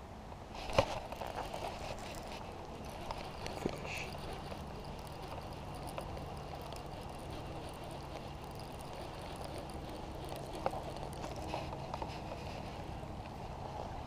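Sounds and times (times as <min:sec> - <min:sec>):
fishing reel being wound: 0:00.8 - 0:12.3.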